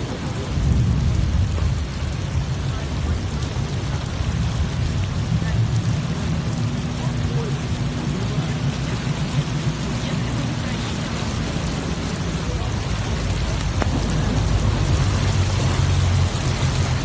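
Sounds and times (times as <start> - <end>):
heavy rain on standing water: 0.0 - 17.0
low rumble: 0.0 - 17.0.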